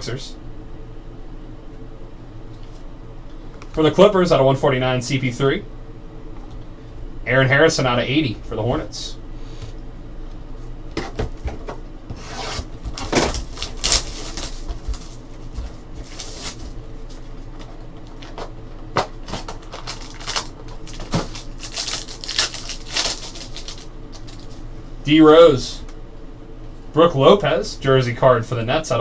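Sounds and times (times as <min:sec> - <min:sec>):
plastic wrapping crinkling: 0:12.9 - 0:24.6.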